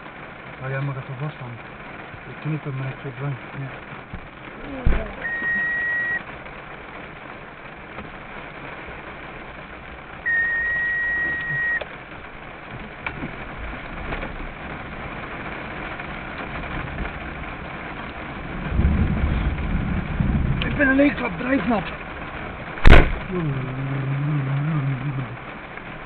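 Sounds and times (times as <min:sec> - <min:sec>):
rain on a car: 0:00.0 - 0:26.0
long electronic beeps: 0:05.2 - 0:06.2, 0:10.2 - 0:11.9.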